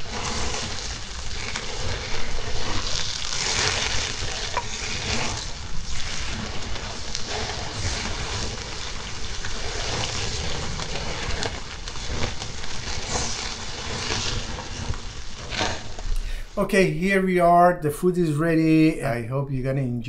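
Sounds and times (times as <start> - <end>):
fire rushing: 0.0 - 17.5
skewers sizzling on grill: 0.0 - 17.5
fat crackling: 0.0 - 20.0.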